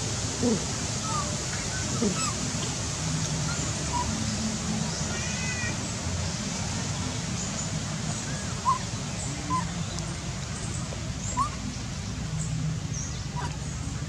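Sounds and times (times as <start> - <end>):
low outdoor hum: 0.0 - 14.0.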